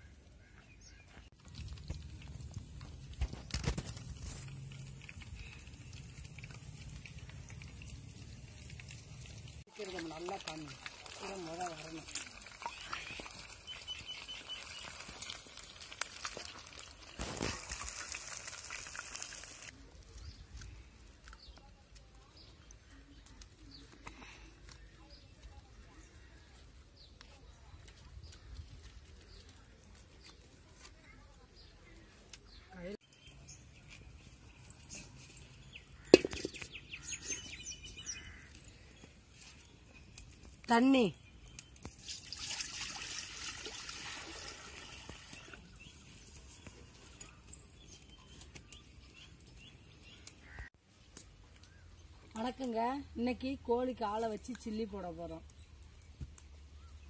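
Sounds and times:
deep-frying sizzling and crackling: 1.4s - 19.8s
bird chirping: 12.6s - 15.1s, 31.6s - 42.0s.

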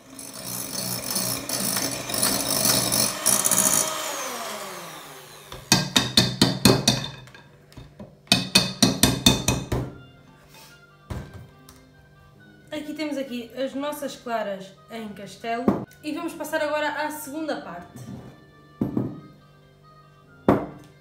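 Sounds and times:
electric hand mixer whirring: 0.0s - 7.0s
beaters knocking on ceramic bowl: 5.6s - 7.5s, 8.3s - 9.9s.

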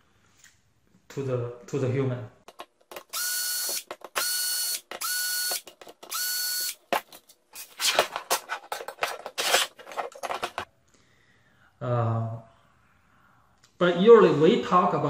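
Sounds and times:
plastic clicks and rattles: 2.4s - 3.1s, 3.8s - 4.2s
cordless drill whining: 2.9s - 6.8s.

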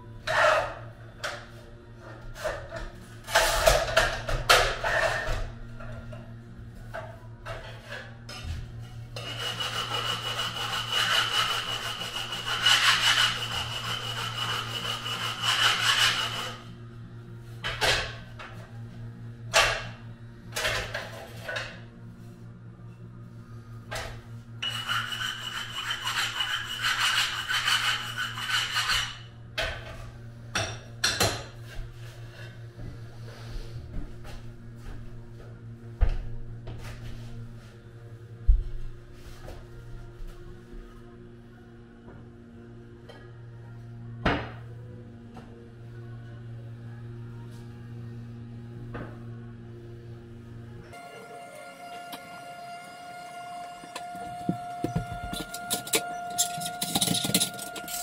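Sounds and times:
tile cutter scraping tile: 9.2s - 16.6s, 24.6s - 29.2s
rasping rub on tile: 9.2s - 16.7s, 24.6s - 29.2s.

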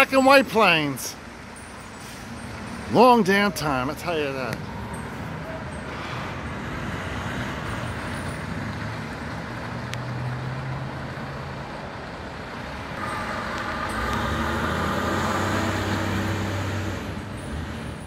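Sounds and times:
fire truck diesel engine: 0.0s - 18.0s
higher engine whine: 12.6s - 18.0s.

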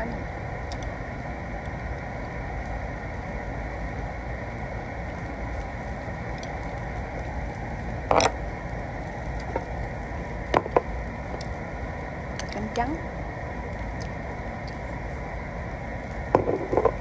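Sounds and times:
restaurant background noise: 5.1s - 17.0s.

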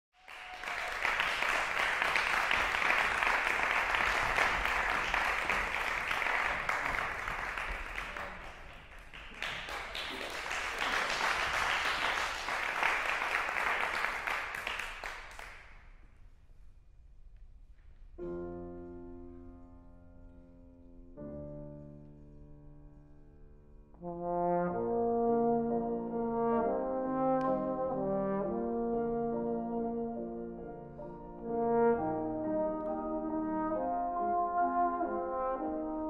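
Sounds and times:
audience applauding: 0.1s - 15.8s.

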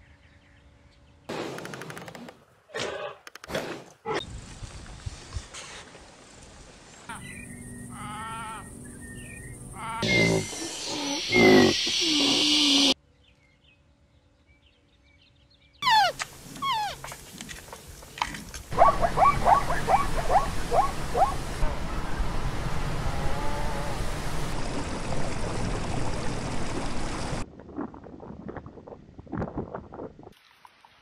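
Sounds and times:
high falling animal calls: 7.1s - 13.0s, 15.8s - 17.2s, 18.7s - 22.3s
short falling yelps: 15.8s - 17.0s.

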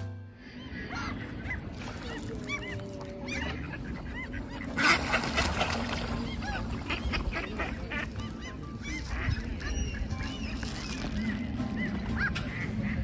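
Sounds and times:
gulls and geese calling: 0.3s - 13.0s.

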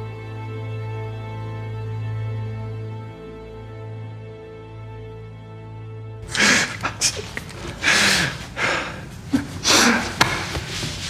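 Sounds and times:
ragged gasping breaths: 6.2s - 11.0s.

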